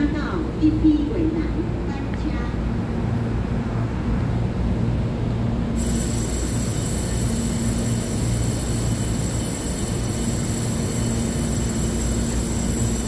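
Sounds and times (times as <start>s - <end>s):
train electrical hum: 0.0s - 13.0s
high-pitched whine: 5.7s - 13.0s.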